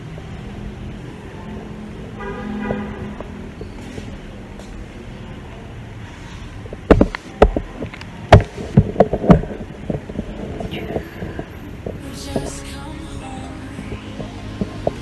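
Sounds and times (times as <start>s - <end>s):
sharp thumps and knocks: 6.7s - 7.7s.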